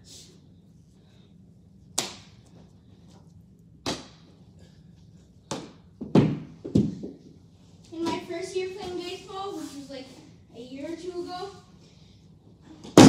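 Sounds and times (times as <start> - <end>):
baseball hitting wall: 3.8 - 4.3, 5.5 - 7.2.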